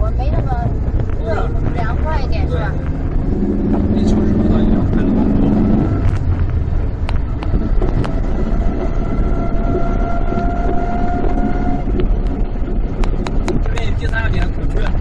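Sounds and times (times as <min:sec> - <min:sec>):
vehicle engine and tyre rumble: 0:00.0 - 0:15.0.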